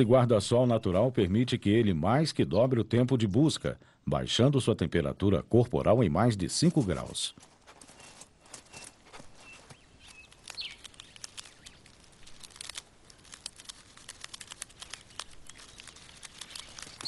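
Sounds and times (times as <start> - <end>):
squirrel gnawing and crunching seed: 6.8 - 17.0
bird chirping: 7.2 - 12.6, 14.8 - 17.0.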